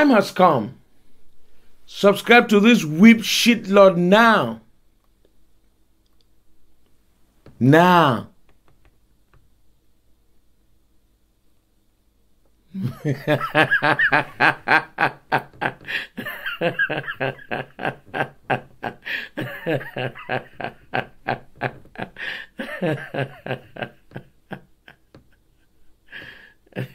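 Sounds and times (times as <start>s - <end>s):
man laughing heartily: 12.7s - 26.9s.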